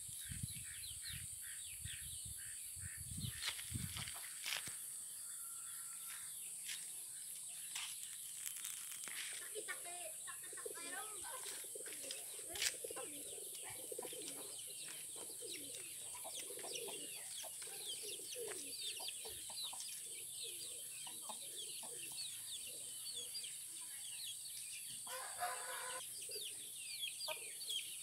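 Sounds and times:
small birds chirping: 0.0 - 28.0
chickens clucking: 9.3 - 22.9, 25.1 - 27.9
drawn-out chicken call: 25.1 - 26.0.

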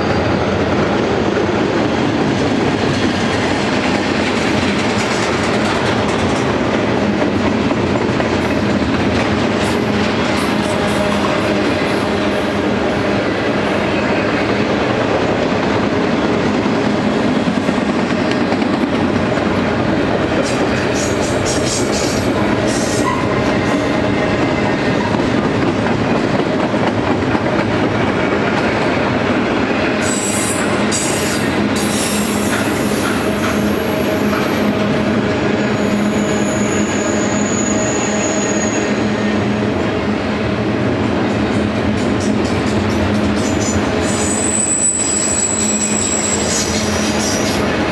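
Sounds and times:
train wheels rumbling on rails: 0.0 - 47.9
high-pitched wheel squeal: 35.8 - 39.0, 43.5 - 47.6.

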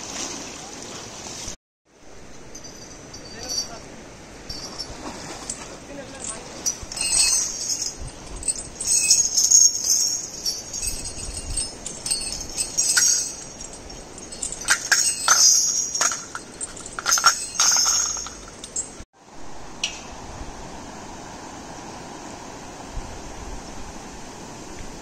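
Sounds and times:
iron chain clinking: 2.3 - 3.8, 4.5 - 19.0.

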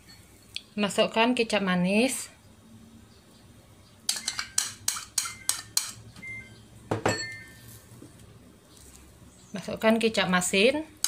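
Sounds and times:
tableware clinking on ceramic bowl: 4.1 - 6.0, 6.9 - 7.6.

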